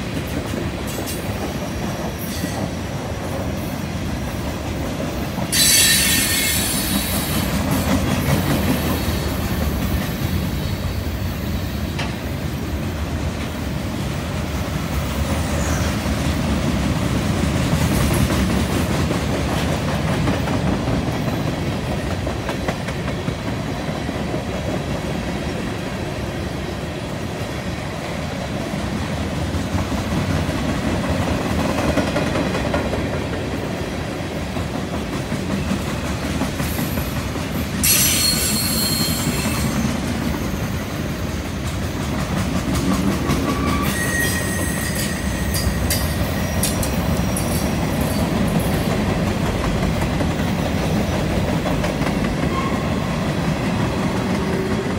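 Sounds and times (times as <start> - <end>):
train wheels rumbling on rail: 0.0 - 54.9
wheel flanges squealing: 37.8 - 41.0, 43.5 - 46.8.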